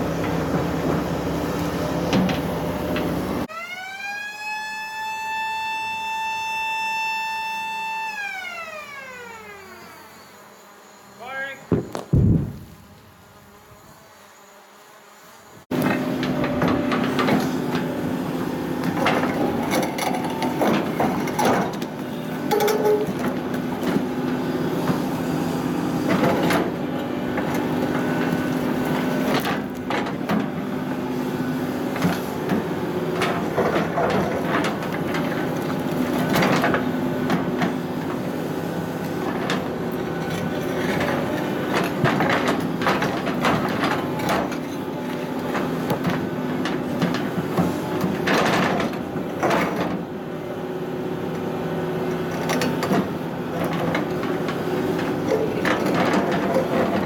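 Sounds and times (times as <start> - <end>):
excavator diesel engine running: 0.0 - 3.5, 15.7 - 57.0.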